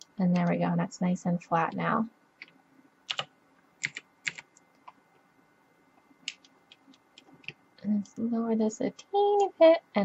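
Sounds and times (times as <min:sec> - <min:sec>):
keyboard keystrokes: 0:03.1 - 0:05.0.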